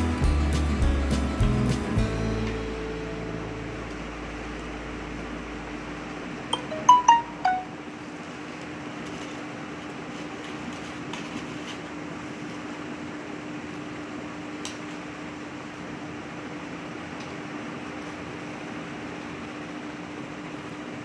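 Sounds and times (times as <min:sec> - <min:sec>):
mechanical hum: 0:00.0 - 0:21.0
short chiming notes: 0:06.5 - 0:07.8.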